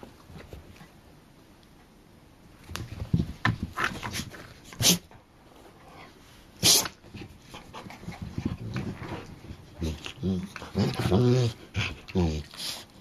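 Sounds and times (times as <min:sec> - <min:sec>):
dogs scuffling: 0:02.5 - 0:12.7
dog hissing huffs: 0:04.7 - 0:05.1, 0:06.6 - 0:07.0.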